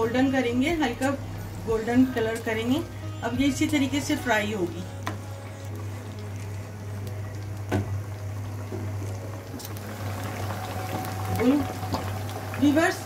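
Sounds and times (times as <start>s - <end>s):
low steady hum: 0.0s - 13.0s
chicken sizzling in oil: 5.4s - 13.0s.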